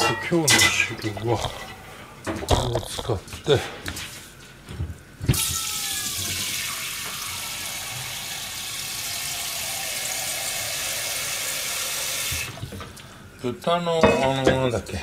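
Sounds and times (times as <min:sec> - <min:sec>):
tap water filling a saucepan: 0:06.2 - 0:13.0.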